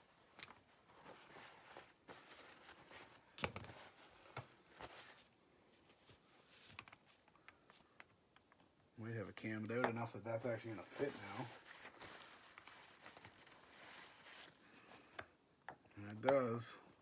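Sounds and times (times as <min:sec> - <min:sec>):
paper towel rustling: 0:00.1 - 0:07.8, 0:10.0 - 0:15.0.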